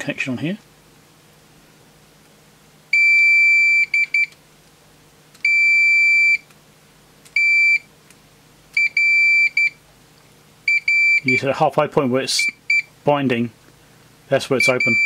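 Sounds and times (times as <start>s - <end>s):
multimeter beeping: 2.9s - 4.4s, 5.4s - 6.4s, 7.3s - 7.9s, 8.8s - 9.8s, 10.7s - 11.4s, 12.4s - 12.9s, 14.6s - 15.0s.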